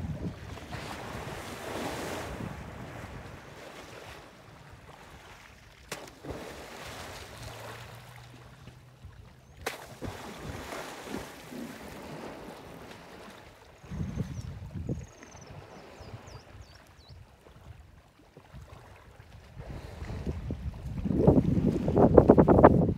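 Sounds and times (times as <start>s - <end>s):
wind buffeting microphone: 0.0s - 3.6s, 13.8s - 17.8s, 19.5s - 22.9s
water splashing and sloshing: 0.0s - 22.9s.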